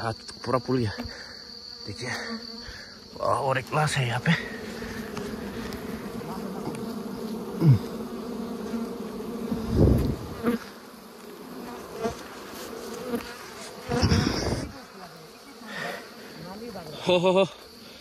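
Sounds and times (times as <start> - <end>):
bees buzzing drone: 0.0 - 18.0
single falling buzz: 4.9 - 10.7.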